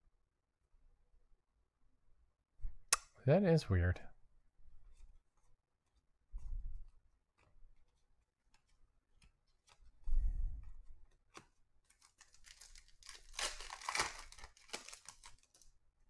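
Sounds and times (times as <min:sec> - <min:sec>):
foil wrapper tearing and crinkling: 0:11.9 - 0:15.7.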